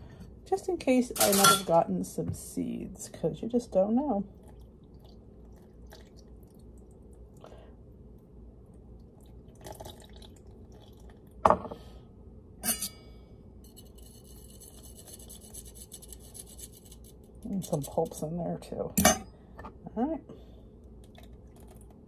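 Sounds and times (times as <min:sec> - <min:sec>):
juice dripping through a sieve: 0:04.3 - 0:11.4, 0:20.8 - 0:22.0.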